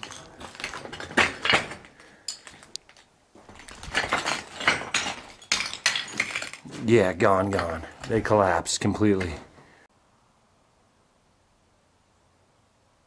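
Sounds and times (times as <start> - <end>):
clinks of loose fragments: 0.0 - 6.8
footsteps crunching over rubble: 0.0 - 9.8.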